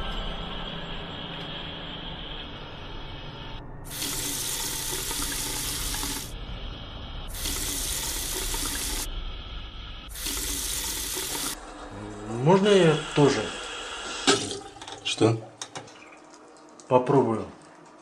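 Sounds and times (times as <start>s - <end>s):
tap water splashing into sink: 14.2s - 16.9s.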